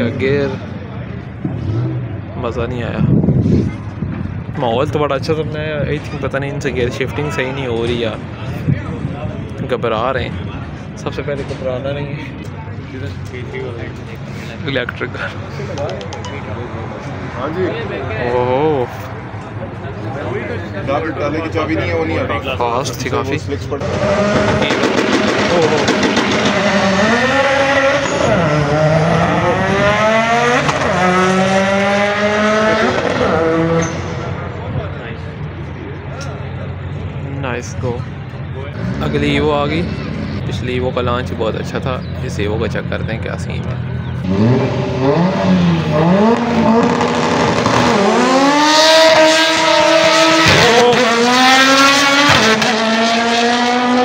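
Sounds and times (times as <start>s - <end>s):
drag car engine accelerating: 23.5s - 35.3s, 43.8s - 54.0s.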